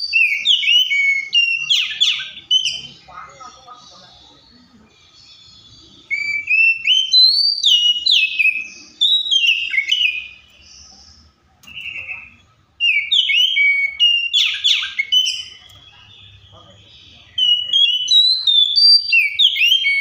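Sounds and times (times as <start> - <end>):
bird singing whistled phrases: 0.0 - 4.4, 5.2 - 10.7, 11.6 - 20.0.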